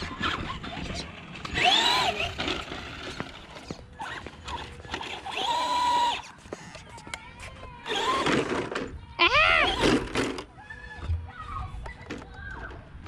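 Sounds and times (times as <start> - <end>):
rc truck electric motor whining: 0.1 - 6.8, 7.8 - 8.8, 9.4 - 10.5.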